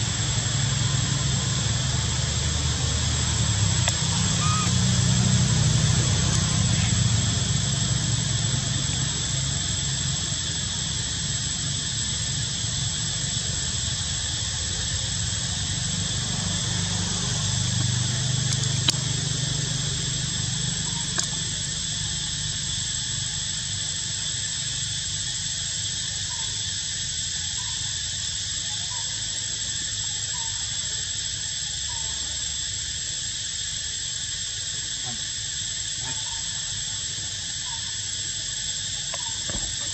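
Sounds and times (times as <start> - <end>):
high-pitched insect drone: 0.0 - 39.9
faint short chirps: 4.4 - 4.7.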